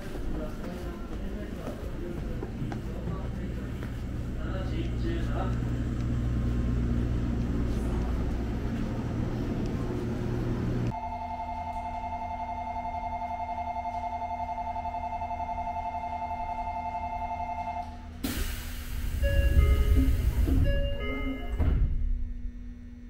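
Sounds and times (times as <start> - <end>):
train hum and rumble: 0.0 - 11.0, 15.6 - 23.0
electronic two-tone bell ringing: 11.0 - 17.8, 19.2 - 21.6.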